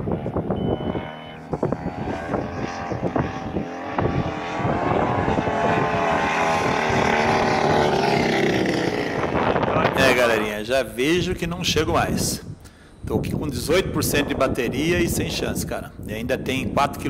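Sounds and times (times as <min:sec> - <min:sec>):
motor droning: 0:00.0 - 0:09.7.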